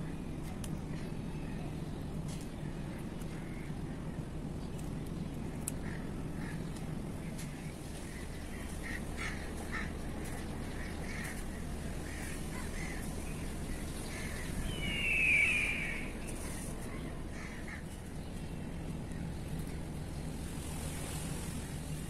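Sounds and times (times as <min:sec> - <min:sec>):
steady background noise: 0:00.0 - 0:22.0
birds calling harshly: 0:08.0 - 0:18.0.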